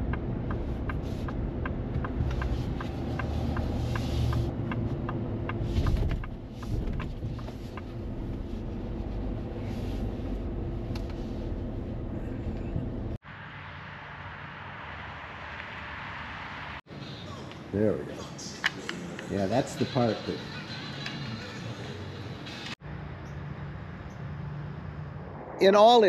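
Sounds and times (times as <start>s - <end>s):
turn signal ticking: 0.0s - 8.4s
truck road and engine rumble: 0.0s - 25.7s.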